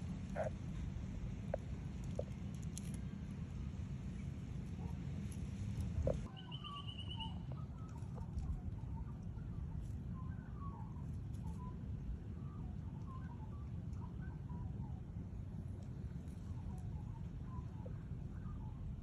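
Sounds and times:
faint bird calls: 6.0 - 7.9.

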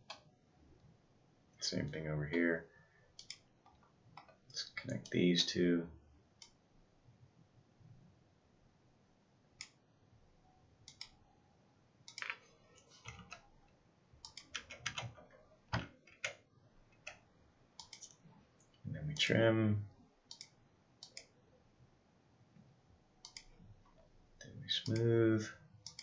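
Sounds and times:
computer mouse clicks: 3.2 - 4.4, 10.8 - 11.2, 12.1 - 13.5, 14.2 - 16.4, 17.8 - 19.3, 20.3 - 21.4, 23.2 - 24.1.

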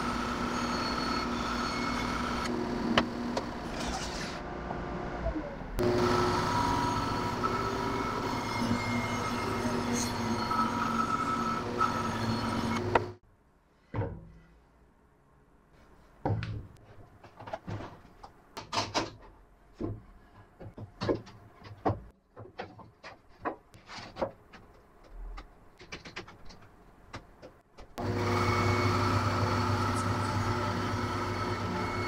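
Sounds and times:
power tool running: 5.8 - 9.6, 28.0 - 32.0.

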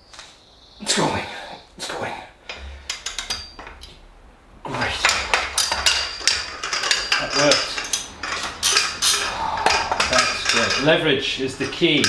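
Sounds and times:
steel hand tools clanking: 2.5 - 4.1, 4.7 - 12.0.

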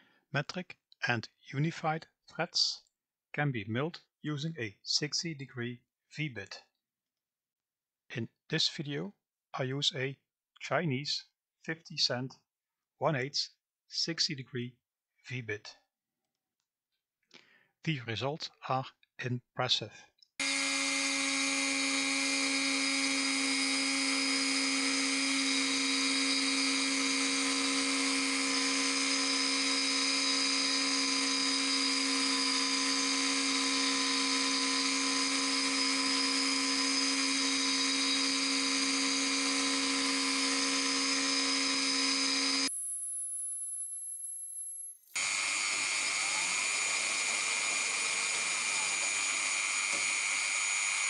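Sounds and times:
rotary tool high-pitched whine: 20.4 - 51.0.

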